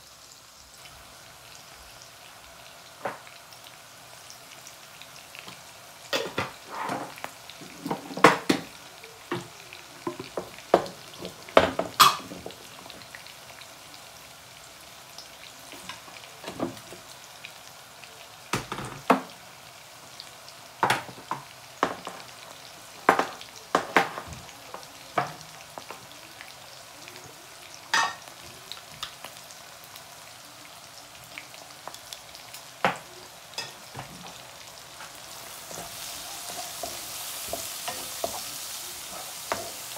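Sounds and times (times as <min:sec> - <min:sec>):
food sizzling in hot oil: 0:00.0 - 0:39.9
wooden spoon knocking on pan: 0:09.3 - 0:12.6, 0:20.8 - 0:22.3, 0:23.1 - 0:24.4, 0:35.7 - 0:38.5, 0:39.5 - 0:39.9.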